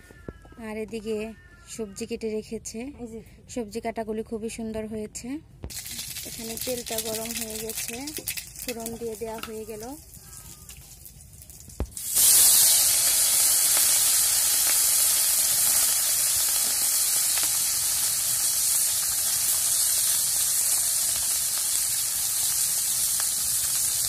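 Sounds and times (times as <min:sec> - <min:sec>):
fish frying in hot oil: 0:05.7 - 0:24.0.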